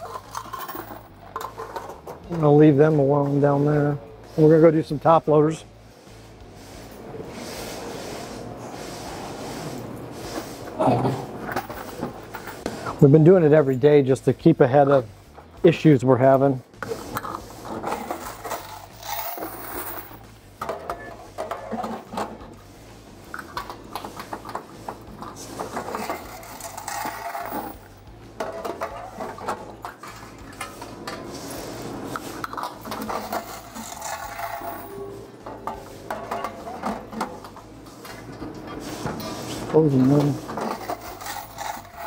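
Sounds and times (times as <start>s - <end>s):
coins clinking into plastic bucket: 0.0s - 2.5s, 17.8s - 22.4s, 25.3s - 30.7s, 32.5s - 37.2s, 40.0s - 42.0s
metal coin boxes clicking: 0.0s - 2.6s, 17.8s - 22.3s, 25.2s - 30.7s, 32.4s - 37.2s.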